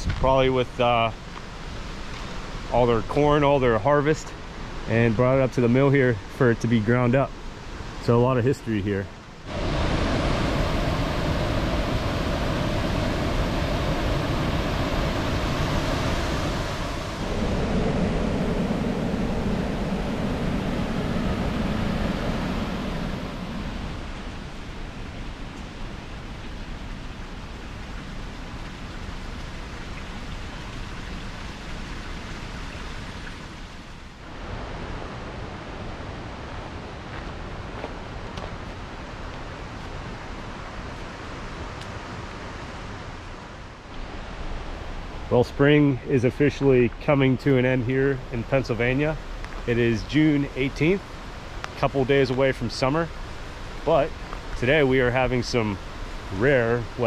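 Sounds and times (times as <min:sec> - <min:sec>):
creek water rushing over rocks: 0:09.2 - 0:20.2.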